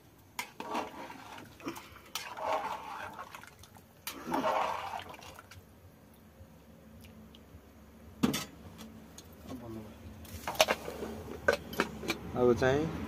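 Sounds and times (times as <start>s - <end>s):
rice sloshing in pot: 0.4s - 5.6s.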